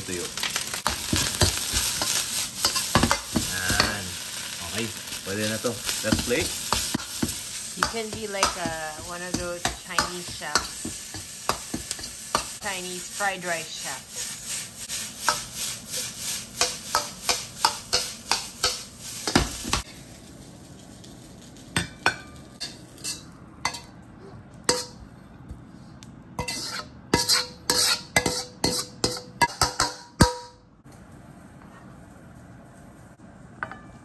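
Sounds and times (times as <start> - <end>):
food sizzling: 0.0 - 25.0
ladle scraping and striking wok: 0.6 - 5.2, 5.8 - 12.7, 14.2 - 20.0, 21.5 - 23.9, 24.7 - 25.0, 26.4 - 30.5.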